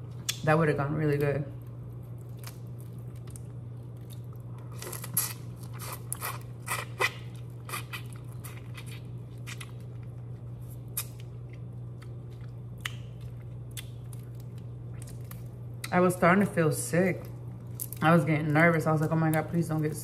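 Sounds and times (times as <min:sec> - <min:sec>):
steady low hum: 0:00.0 - 0:20.0
shrimp shells crunching with chewing: 0:02.0 - 0:15.9.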